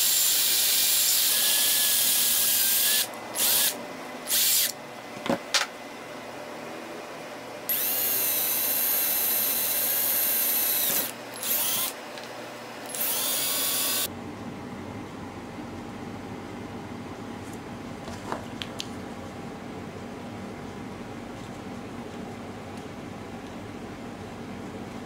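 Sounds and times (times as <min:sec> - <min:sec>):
cordless drill whining: 0:00.0 - 0:04.7, 0:07.7 - 0:12.0, 0:12.9 - 0:14.1.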